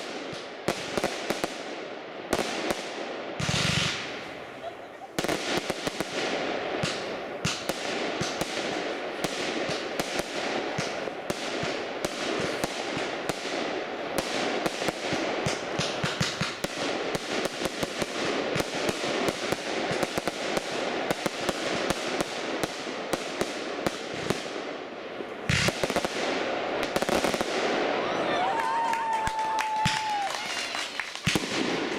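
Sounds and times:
fireworks popping and banging: 0:00.0 - 0:24.7, 0:25.4 - 0:31.9.

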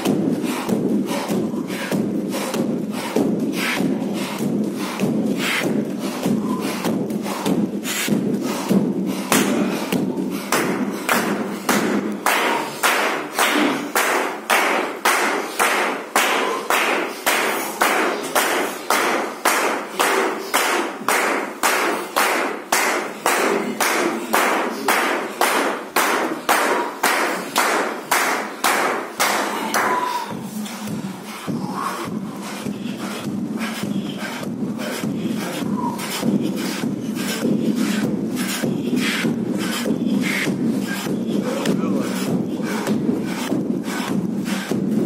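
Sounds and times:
men clapping hands: 0:09.3 - 0:30.0.

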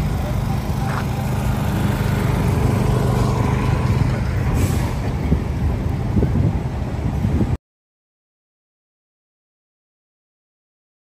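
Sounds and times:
idling heavy engine hum: 0:00.0 - 0:07.6
brief hiss: 0:04.5 - 0:05.1.

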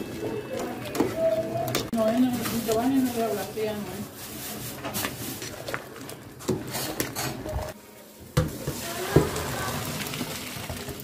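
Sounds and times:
water boiling: 0:08.4 - 0:11.0.

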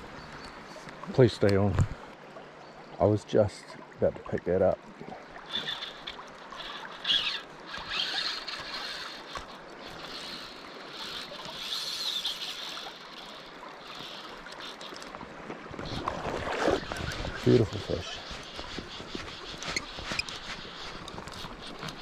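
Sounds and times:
river water rushing: 0:04.8 - 0:18.6
fly reel whirring: 0:05.4 - 0:22.0.

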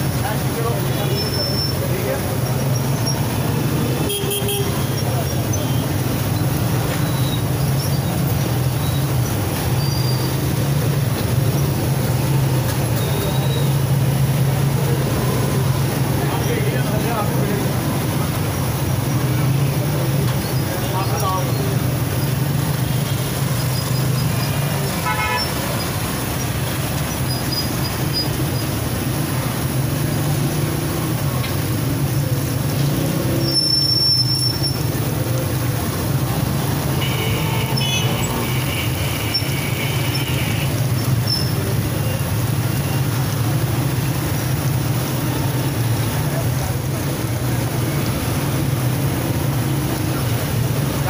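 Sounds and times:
low rumble of traffic: 0:00.0 - 0:51.0
vehicle horn: 0:04.0 - 0:04.9, 0:25.0 - 0:25.5, 0:37.0 - 0:40.7.

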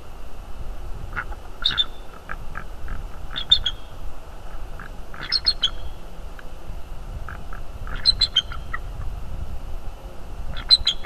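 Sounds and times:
steady low rumble: 0:00.0 - 0:11.0
short animal calls: 0:04.5 - 0:05.9.

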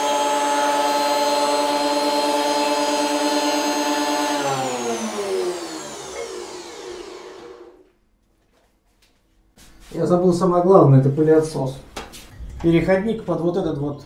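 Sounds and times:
jointer-planer motor whining: 0:00.0 - 0:07.9.

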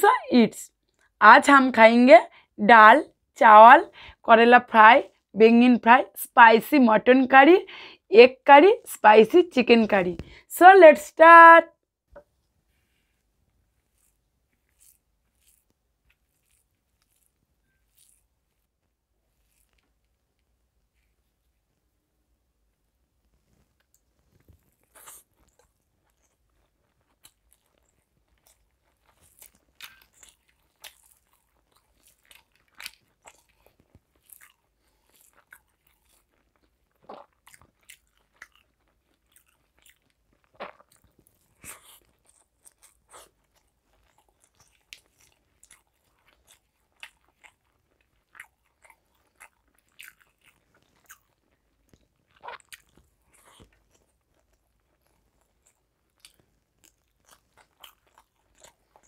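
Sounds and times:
close chewing of food: 0:12.9 - 0:21.0, 0:23.0 - 0:59.0
faint crunches and clicks: 0:23.2 - 0:59.0.

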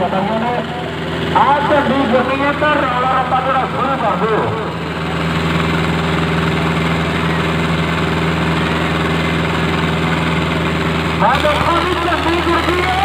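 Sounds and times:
tractor diesel engines droning: 0:00.0 - 0:13.0.

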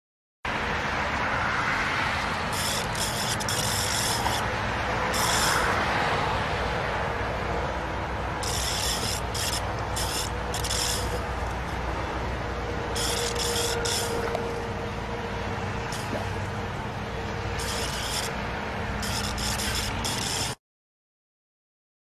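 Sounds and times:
butterfly scratchy rasping: 0:02.3 - 0:05.9, 0:08.4 - 0:15.0, 0:15.8 - 0:16.6, 0:17.4 - 0:20.6.

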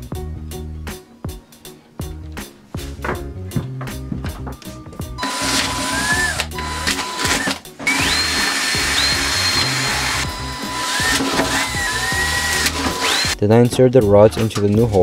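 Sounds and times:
background music: 0:00.0 - 0:15.0
cordless drill whining: 0:05.2 - 0:13.4.

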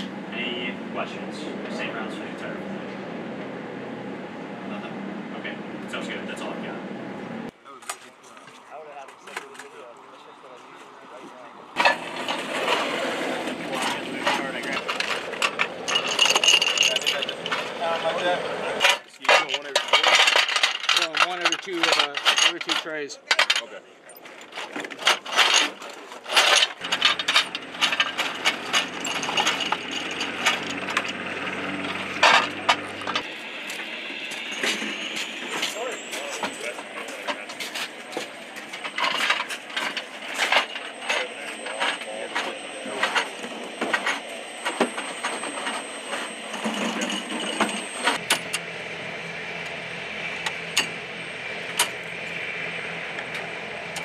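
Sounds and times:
steady low hum: 0:00.0 - 0:54.0.

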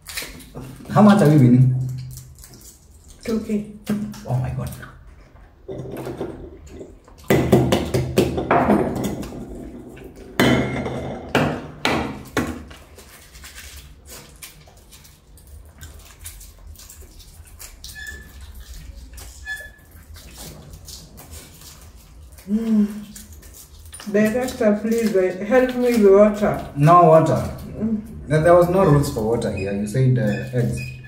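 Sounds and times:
eggshell being peeled: 0:00.0 - 0:05.0, 0:12.2 - 0:31.0.

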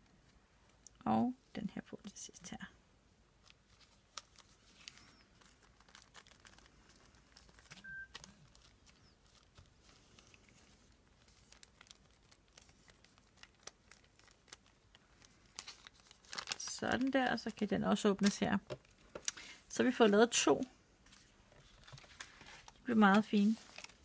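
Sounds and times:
paper rustling and crinkling: 0:03.4 - 0:19.3, 0:21.0 - 0:24.0.

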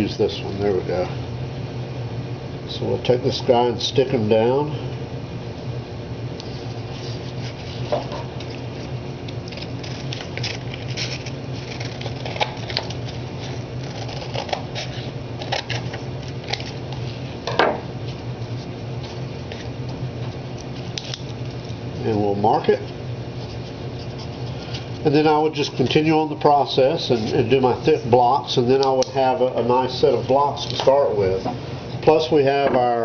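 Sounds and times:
paper crackles: 0:06.9 - 0:17.2.

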